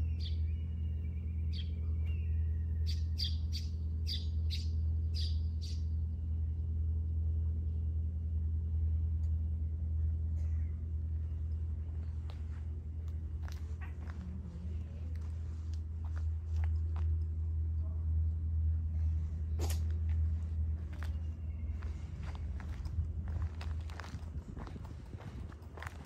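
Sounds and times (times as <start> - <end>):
bird chirping: 0.0 - 6.0
low mechanical hum: 0.0 - 26.0.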